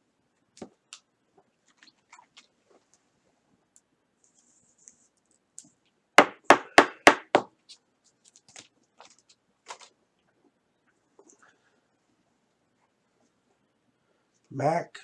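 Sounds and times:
sharp knocks on hard surface: 6.2s - 7.5s.

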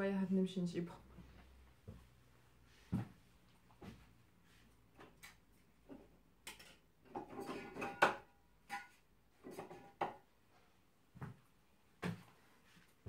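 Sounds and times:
household objects knocking and clattering: 5.8s - 10.3s.

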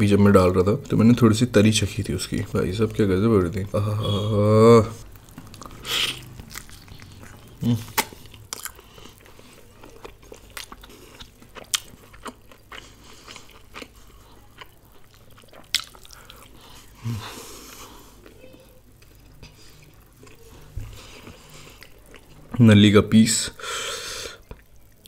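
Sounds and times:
person chewing meat: 4.9s - 22.6s, 24.3s - 25.0s.

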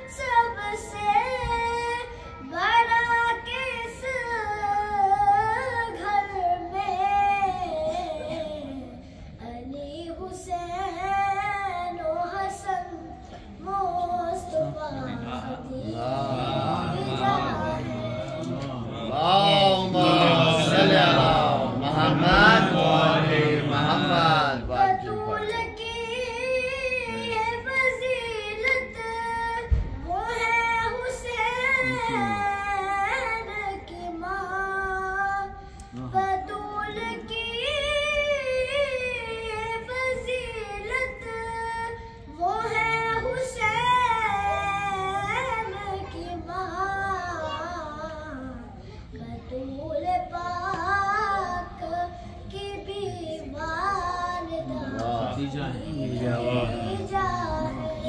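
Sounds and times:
boy singing into microphone: 0.0s - 18.8s, 19.5s - 58.0s
several voices singing together: 15.8s - 25.2s.

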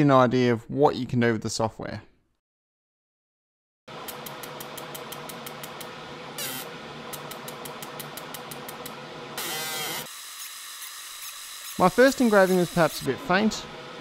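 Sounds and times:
laser engraver humming: 4.4s - 14.0s.

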